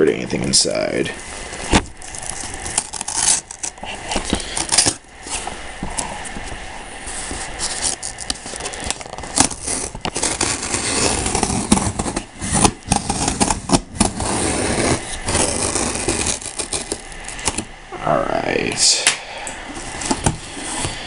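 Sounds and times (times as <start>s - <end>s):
knife slitting packing tape: 2.0s - 5.0s, 7.6s - 17.7s.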